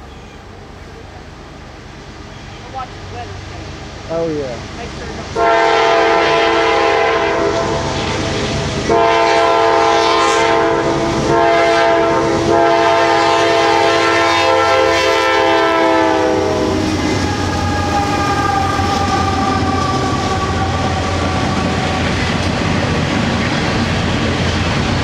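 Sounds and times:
locomotive horn: 5.3s - 8.2s, 8.9s - 22.6s
train wheels clattering on rail joints: 16.8s - 25.0s.

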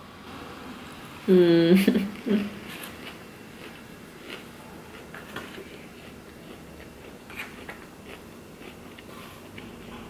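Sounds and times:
person chewing food: 2.7s - 10.0s.

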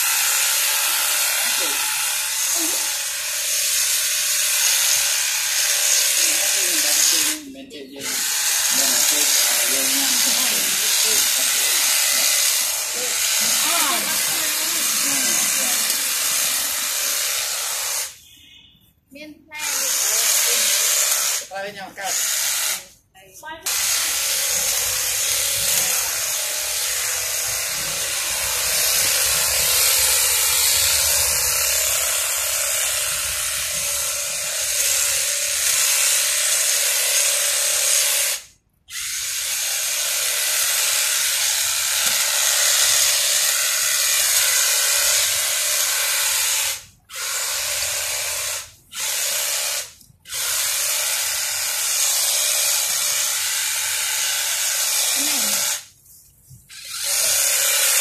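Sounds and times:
hedge trimmer cutting shrub: 0.0s - 18.2s, 19.6s - 23.0s, 23.6s - 55.9s, 56.7s - 58.0s.

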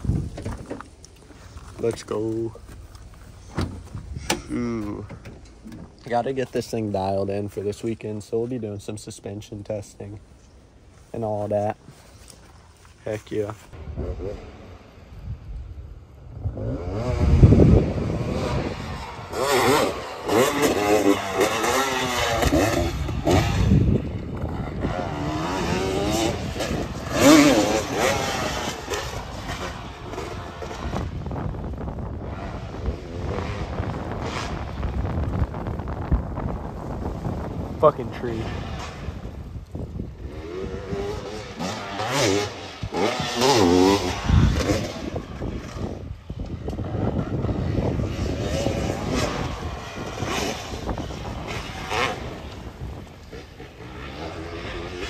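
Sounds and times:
dirt bike engine revving: 11.2s - 55.0s.

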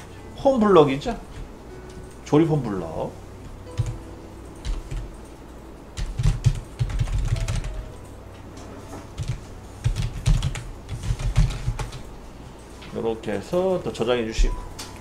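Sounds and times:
typing on keyboard: 3.6s - 4.0s, 4.6s - 5.4s, 6.0s - 8.1s, 9.2s - 12.1s.

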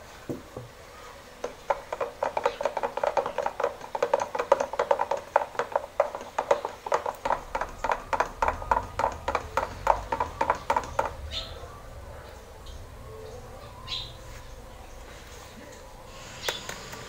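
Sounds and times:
stick stirring paint in container: 1.4s - 11.2s.

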